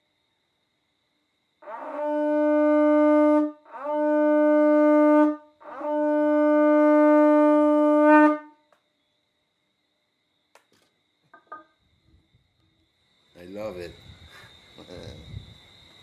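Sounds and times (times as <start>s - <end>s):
conch shell horn blasts: 1.6s - 8.6s.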